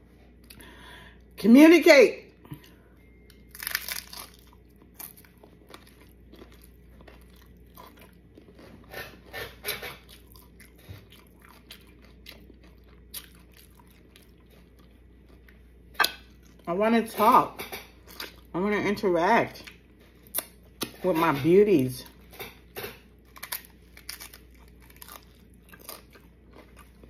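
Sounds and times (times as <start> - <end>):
crunchy taco bites: 3.3 - 16.6, 22.4 - 27.0
chewing: 3.6 - 15.6, 23.3 - 27.0.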